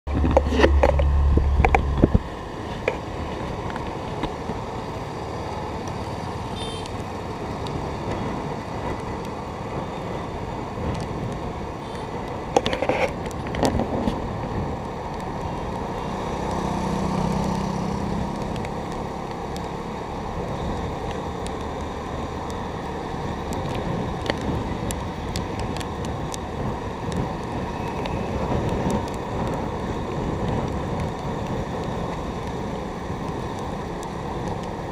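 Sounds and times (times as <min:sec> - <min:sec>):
engine tyre and wind noise: 0:00.0 - 0:34.9
loud low rumble: 0:00.1 - 0:02.6.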